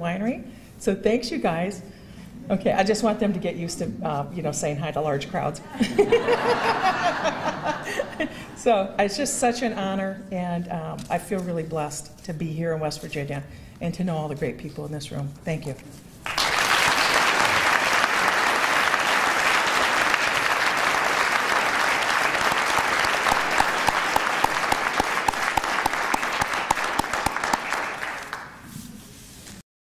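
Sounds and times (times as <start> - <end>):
audience applauding: 16.2 - 28.6.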